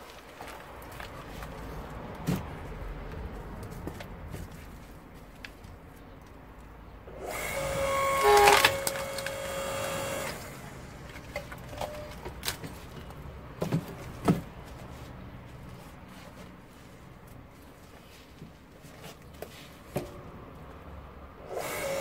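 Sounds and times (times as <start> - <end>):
log creaking and tearing: 0.0 - 6.4, 7.3 - 13.3
wood cracking: 7.8 - 10.2.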